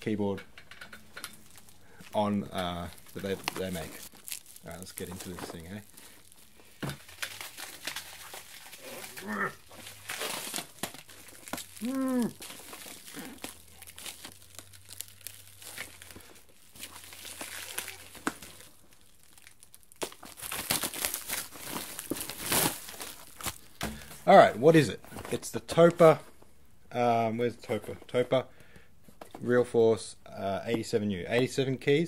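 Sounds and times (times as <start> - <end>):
cardboard packaging tearing: 2.5 - 24.0.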